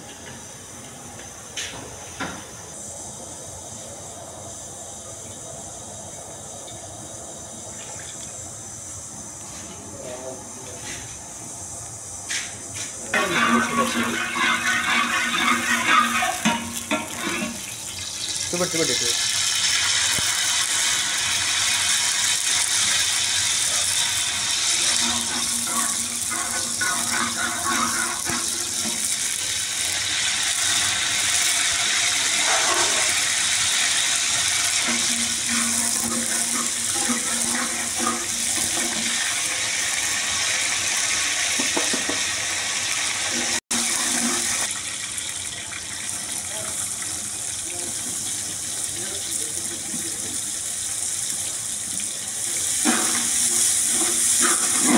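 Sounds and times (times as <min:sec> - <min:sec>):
spices sizzling in hot oil: 0:11.4 - 0:54.9.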